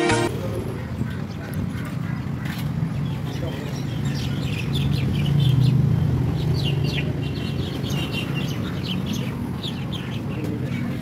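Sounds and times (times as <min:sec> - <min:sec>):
small birds chirping: 0:00.5 - 0:11.0.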